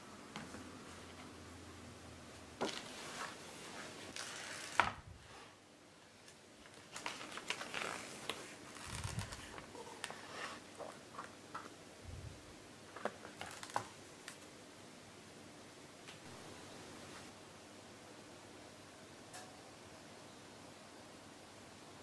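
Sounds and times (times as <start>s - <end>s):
book pages rustling: 2.6s - 5.0s, 6.2s - 11.4s, 12.9s - 14.4s.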